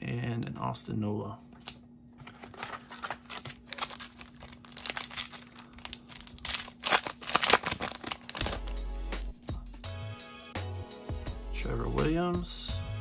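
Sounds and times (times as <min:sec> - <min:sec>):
faint steady hum: 0:00.0 - 0:08.4
foil wrapper crinkling and tearing: 0:02.3 - 0:08.8.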